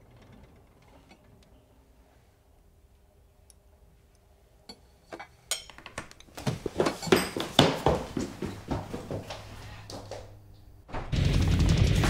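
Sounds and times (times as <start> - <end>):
cutlery clinking on plate: 4.7 - 5.9.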